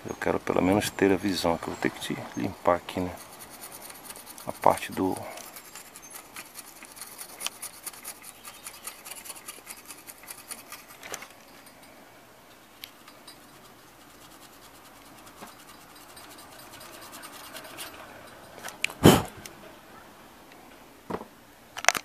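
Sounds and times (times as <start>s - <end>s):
brush scrubbing circuit board: 2.5s - 11.8s, 12.9s - 19.0s.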